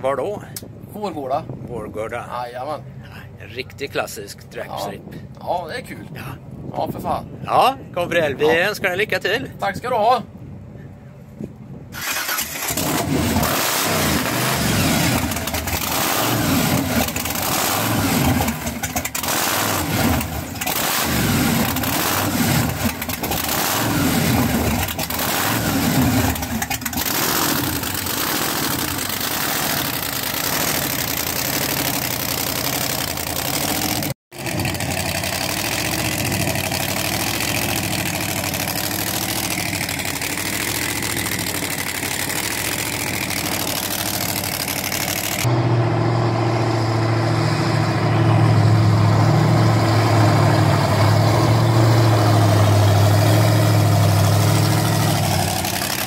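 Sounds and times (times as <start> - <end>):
supercharged engine revving: 12.0 - 56.0.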